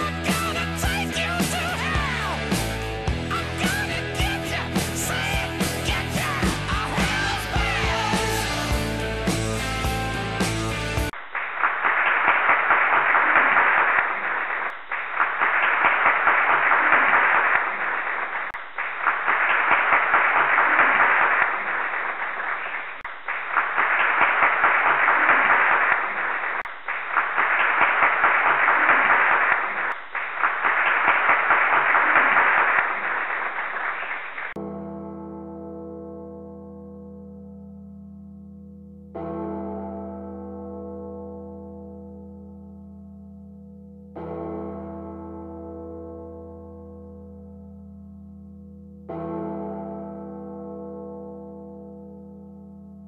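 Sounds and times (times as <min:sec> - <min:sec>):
rock music: 0:00.0 - 0:11.1
crowd applauding and cheering: 0:00.0 - 0:34.6.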